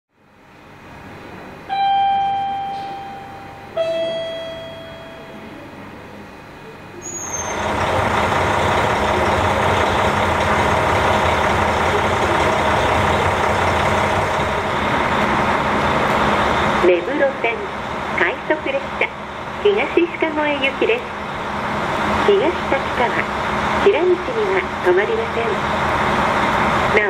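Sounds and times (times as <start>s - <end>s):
diesel railcar engine idling: 0.2s - 27.0s
two-note descending chime: 1.7s - 5.6s.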